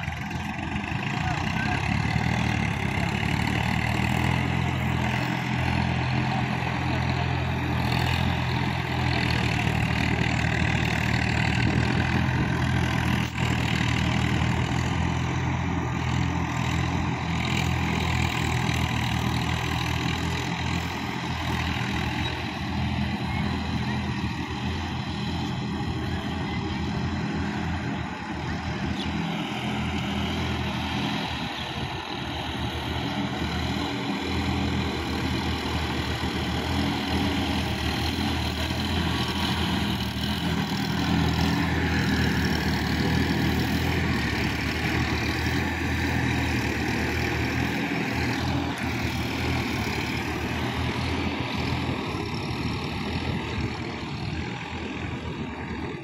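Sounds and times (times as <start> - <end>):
tractor engine running under load: 0.0 - 56.0.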